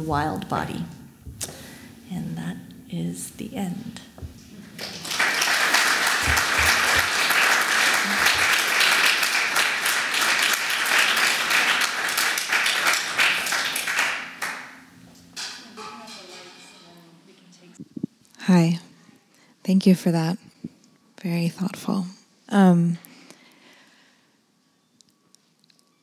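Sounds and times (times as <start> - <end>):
audience applauding: 4.8 - 14.8.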